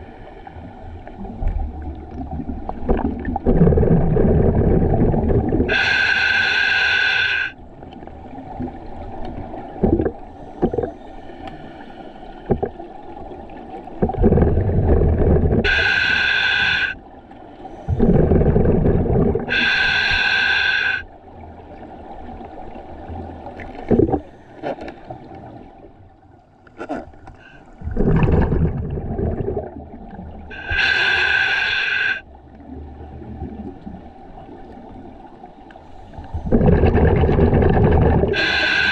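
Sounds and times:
exhaled bubbles gurgling: 0:00.8 - 0:11.1, 0:12.4 - 0:17.0, 0:17.9 - 0:21.0, 0:21.7 - 0:24.3, 0:27.7 - 0:35.2, 0:36.1 - 0:38.9
regulator breath hissing: 0:05.7 - 0:07.6, 0:15.6 - 0:17.0, 0:19.5 - 0:21.1, 0:30.5 - 0:32.3, 0:38.3 - 0:38.9.

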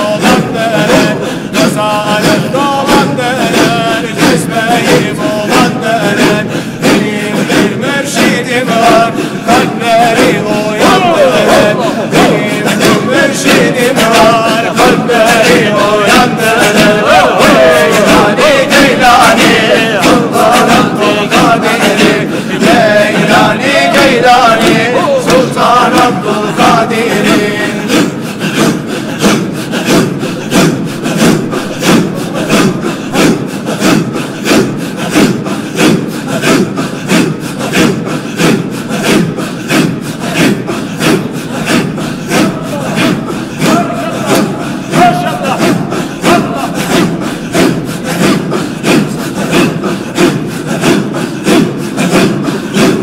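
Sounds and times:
solo voice singing: 0:00.0 - 0:28.7
men chanting in rhythm: 0:00.0 - 0:53.0.

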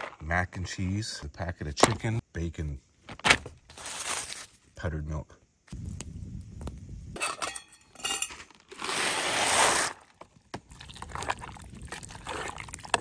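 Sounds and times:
metal pot clinking: 0:07.2 - 0:08.5
liquid pouring: 0:10.7 - 0:13.0.

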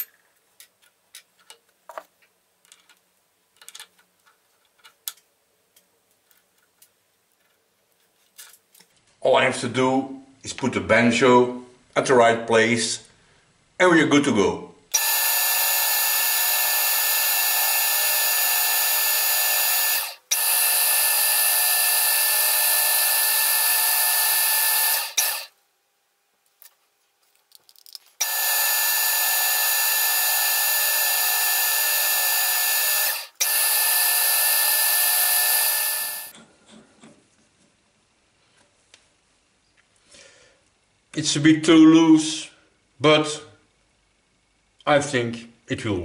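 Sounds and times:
metal lathe gear whine: 0:15.0 - 0:25.5, 0:28.2 - 0:36.3
faint handling sounds: 0:26.4 - 0:28.2.

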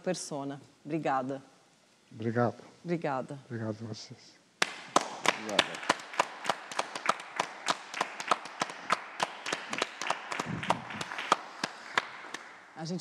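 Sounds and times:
people clapping hands: 0:04.6 - 0:12.6.

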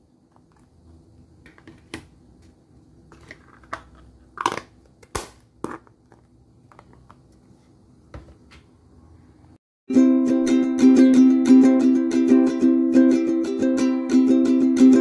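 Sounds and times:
plastic cups clicking and crinkling: 0:03.1 - 0:07.3.

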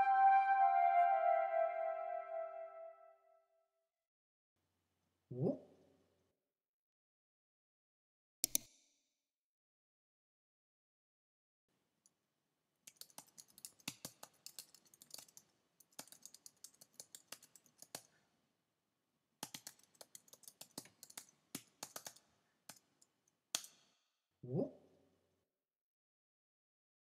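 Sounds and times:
keyboard typing: 0:12.9 - 0:18.1, 0:19.4 - 0:22.8.

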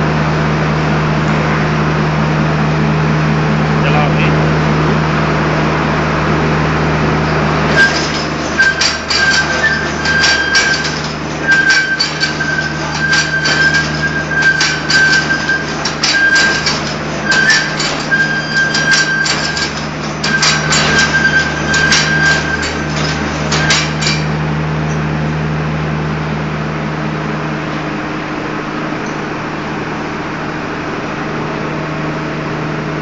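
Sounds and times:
machine hum: 0:00.0 - 0:33.0
high machine tone: 0:07.1 - 0:25.2
rapid metallic clattering: 0:07.7 - 0:24.5.

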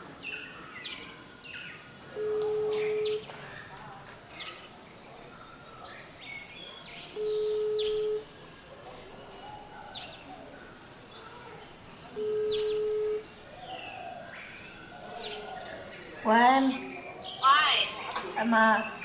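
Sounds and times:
birds chirping: 0:00.0 - 0:19.0
phone ringback beeps: 0:02.2 - 0:03.3, 0:07.2 - 0:08.3, 0:12.2 - 0:13.3.

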